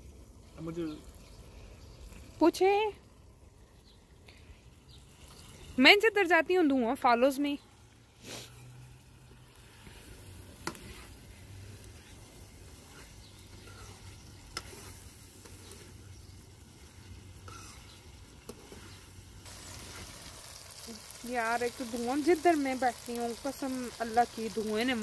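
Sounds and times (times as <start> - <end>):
vegetables sizzling in a pan: 0.0 - 25.0
spatula stirring: 8.4 - 20.4.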